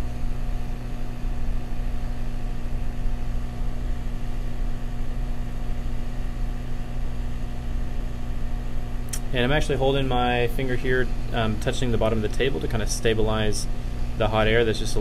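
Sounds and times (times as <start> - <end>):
hot air station blowing: 9.1 - 15.0.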